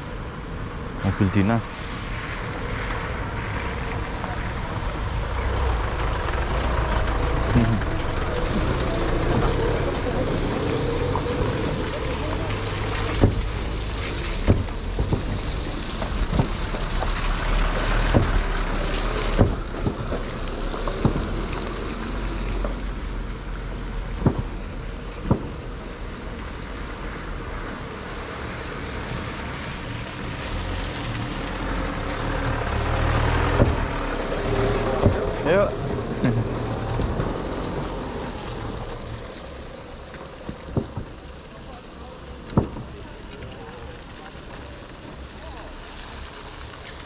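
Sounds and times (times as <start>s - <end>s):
vehicle engines running: 0.0s - 47.0s
wooden boards knocking under wheels: 14.4s - 21.5s.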